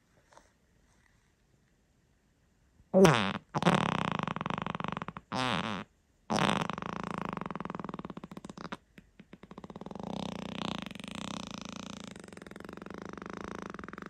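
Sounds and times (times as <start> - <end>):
human farts: 3.0 - 14.0.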